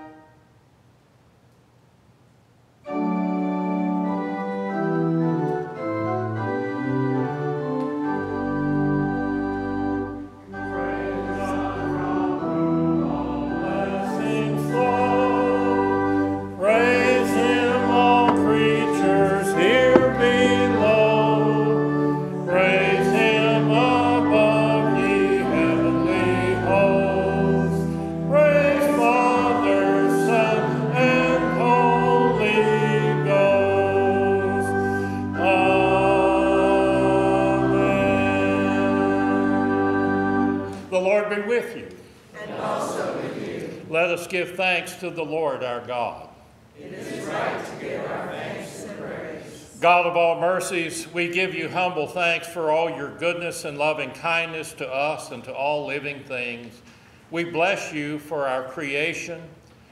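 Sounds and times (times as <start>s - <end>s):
pipe organ playing a hymn: 0.0s - 0.4s, 2.8s - 41.9s, 49.8s - 59.7s
voices singing: 9.7s - 40.7s, 46.8s - 50.9s.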